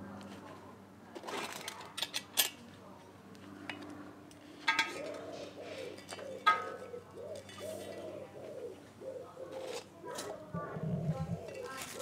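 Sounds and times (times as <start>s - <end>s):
pigeon cooing: 4.9s - 12.0s.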